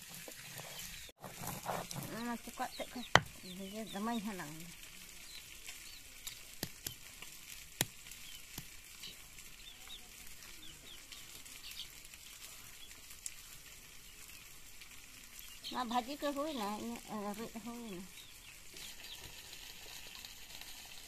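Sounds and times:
birds chirping: 0.0 - 7.1, 7.8 - 14.6, 15.3 - 19.6
stone grinding paste: 0.1 - 2.3
stone knocking on stone: 3.1 - 3.4.

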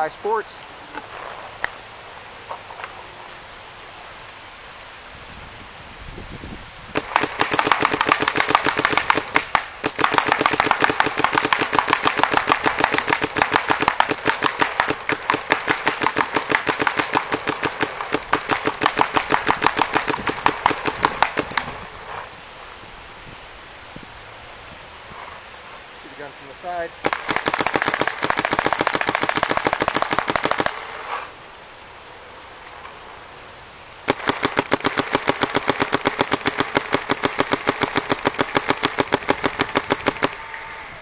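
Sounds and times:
paintball marker firing rapidly: 6.9 - 21.7, 27.0 - 30.8, 34.1 - 40.4.

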